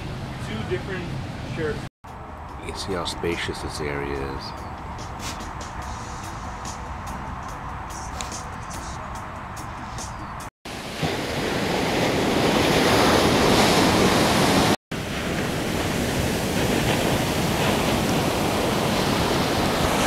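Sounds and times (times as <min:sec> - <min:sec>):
ocean surf breaking on beach: 0:10.7 - 0:20.0.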